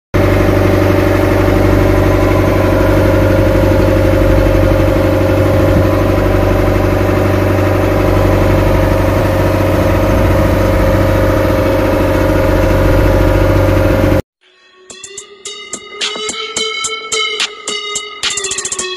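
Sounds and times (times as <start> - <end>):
boat engine running: 0.2 - 14.2.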